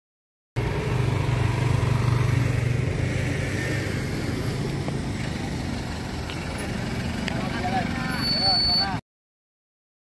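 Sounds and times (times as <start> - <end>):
motor scooter engine pulling away: 0.6 - 7.7.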